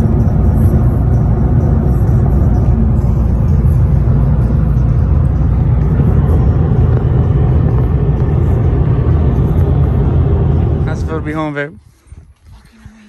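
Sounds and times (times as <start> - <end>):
car cabin rumble at highway speed: 0.0 - 11.8.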